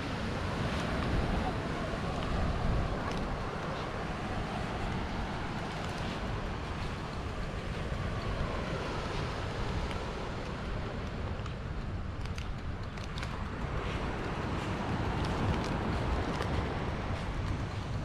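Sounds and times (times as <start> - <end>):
surf washing: 0.0 - 18.0
wind buffeting microphone: 0.0 - 18.0.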